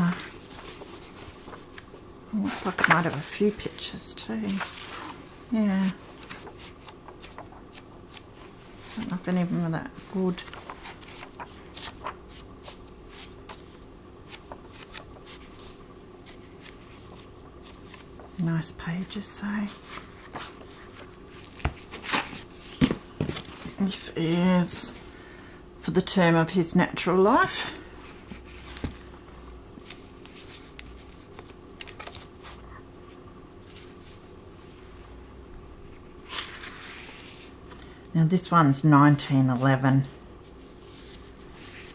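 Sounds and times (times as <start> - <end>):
book pages turning: 0.0 - 24.1, 28.0 - 35.1, 35.8 - 37.8, 40.8 - 41.9
book knocking on table: 22.8 - 23.5.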